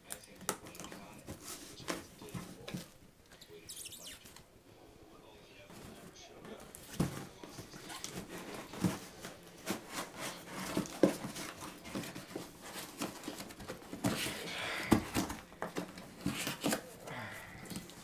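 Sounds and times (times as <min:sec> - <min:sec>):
cardboard rustling and scraping: 0:00.6 - 0:03.0, 0:05.6 - 0:17.0.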